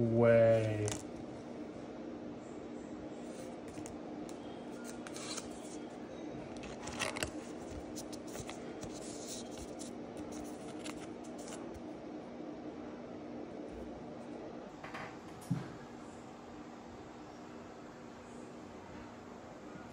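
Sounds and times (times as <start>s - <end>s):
card scraping against plastic sleeve: 4.8s - 5.8s, 6.6s - 11.8s.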